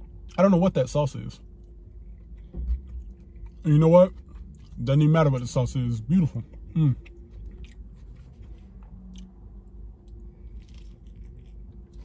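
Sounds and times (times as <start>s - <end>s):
low steady hum: 0.0s - 12.0s
person chewing food: 1.5s - 4.8s, 6.4s - 12.0s.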